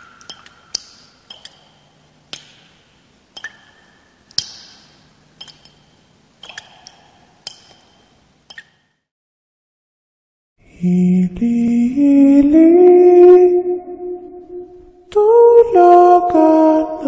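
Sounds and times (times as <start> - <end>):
water drops plinking: 0.0 - 8.8.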